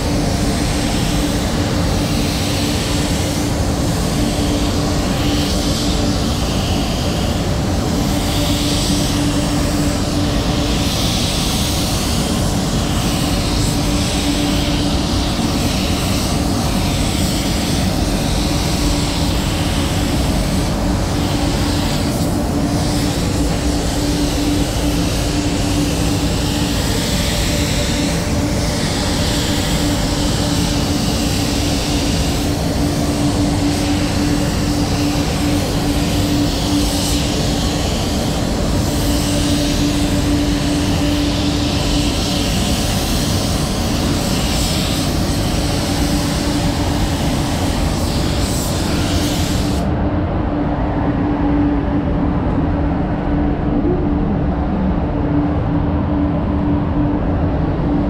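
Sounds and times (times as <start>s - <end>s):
spray gun hissing: 0.0s - 49.9s
steady low hum: 0.0s - 58.0s.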